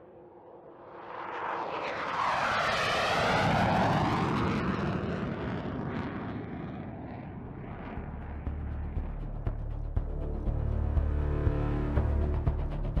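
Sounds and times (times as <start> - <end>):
jet flying past: 0.0 - 9.1.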